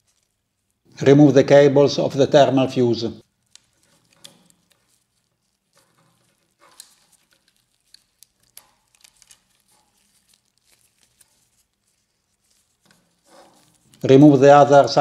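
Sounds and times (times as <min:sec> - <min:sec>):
faint clicks and rustles: 0:00.0 - 0:00.9, 0:03.2 - 0:14.2.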